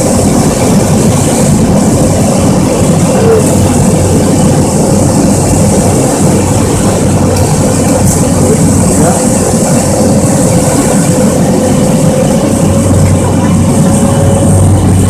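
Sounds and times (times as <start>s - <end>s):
turboprop engine drone: 0.0s - 15.0s.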